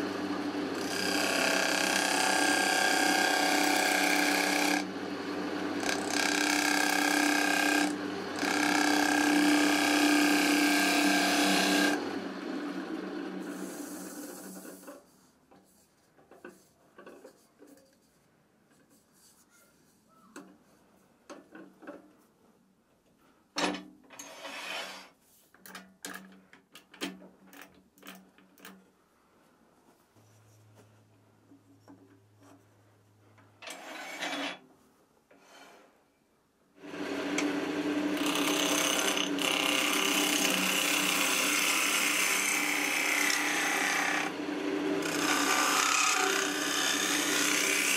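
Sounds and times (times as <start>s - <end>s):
lathe motor hum: 0.0s - 14.8s, 36.8s - 47.9s
gouge cutting spinning wood: 0.4s - 14.8s, 36.9s - 47.9s.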